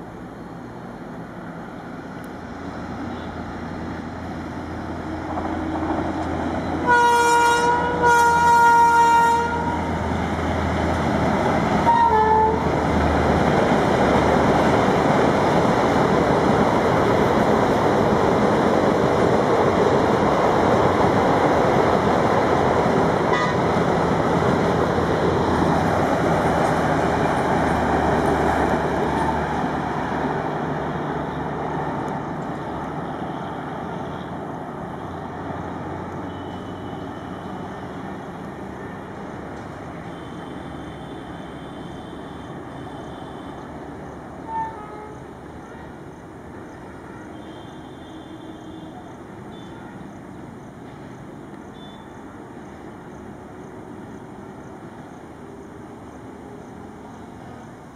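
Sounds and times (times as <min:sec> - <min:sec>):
passenger train rushing past: 0:00.0 - 0:57.9
locomotive horn blasts: 0:06.8 - 0:09.9, 0:11.8 - 0:12.6, 0:23.3 - 0:23.6, 0:36.3 - 0:37.6, 0:44.4 - 0:45.9, 0:47.0 - 0:50.0.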